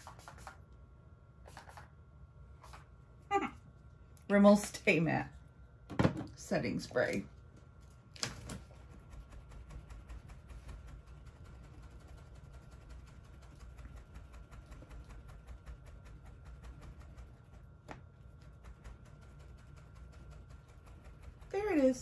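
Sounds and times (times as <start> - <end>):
hand fan swishing: 8.2 - 22.0.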